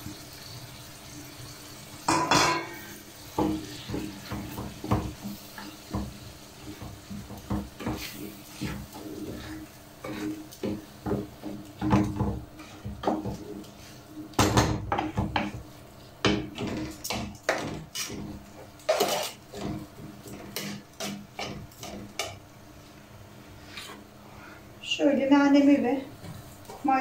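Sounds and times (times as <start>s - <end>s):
wooden spoon scraping metal pot: 6.6s - 13.5s, 16.6s - 22.3s.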